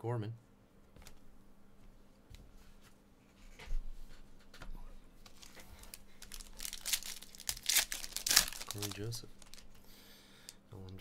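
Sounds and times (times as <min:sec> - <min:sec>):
foil pack crinkling: 0:05.2 - 0:09.8.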